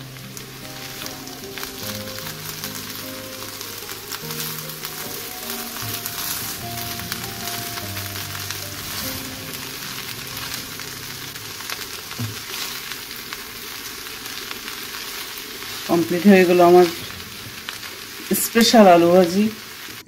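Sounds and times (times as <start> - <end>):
soft background music: 0.0 - 12.9
potatoes sizzling in oil: 0.0 - 20.0.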